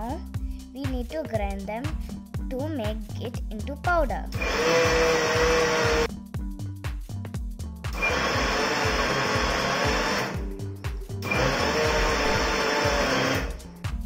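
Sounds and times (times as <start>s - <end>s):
mixer grinder grinding: 4.4s - 6.1s, 7.9s - 10.6s, 11.2s - 13.6s.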